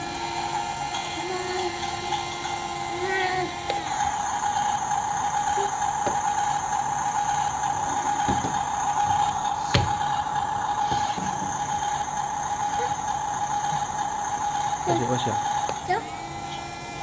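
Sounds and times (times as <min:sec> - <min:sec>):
toy electronic hum: 0:00.0 - 0:17.0.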